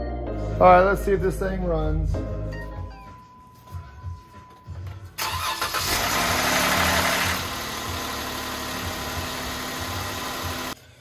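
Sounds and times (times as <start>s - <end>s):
car engine cranking and idling: 5.2s - 10.8s.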